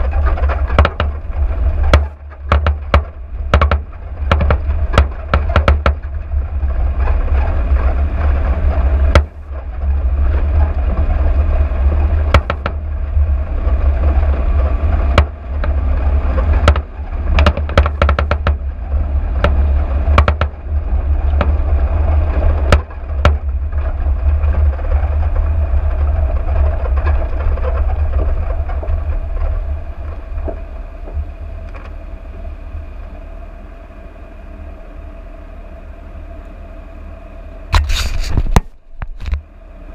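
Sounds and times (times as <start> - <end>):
knocks and rattles over ruts: 0.0 - 32.0
vehicle rumbling on dirt track: 0.0 - 39.9.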